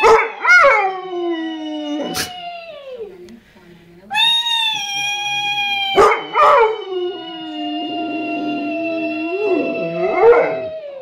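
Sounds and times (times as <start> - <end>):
dog howling: 0.0 - 3.2, 4.5 - 11.0
dog yelps: 4.2 - 6.8.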